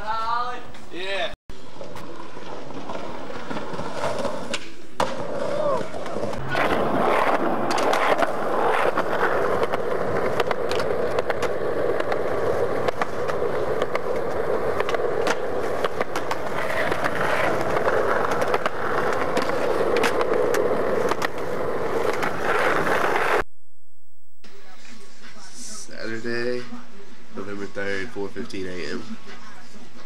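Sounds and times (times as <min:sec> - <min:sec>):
skateboard wheels rolling on concrete: 0:00.0 - 0:23.4.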